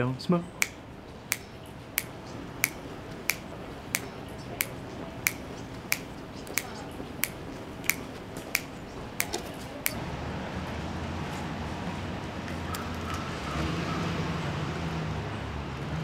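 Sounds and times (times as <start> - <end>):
finger snaps: 0.6 - 10.0.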